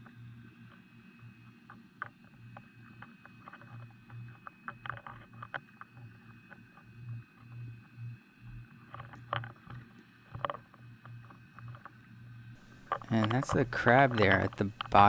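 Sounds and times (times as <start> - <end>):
low underwater hum: 0.0 - 15.0
sharp underwater clicks: 12.6 - 15.0.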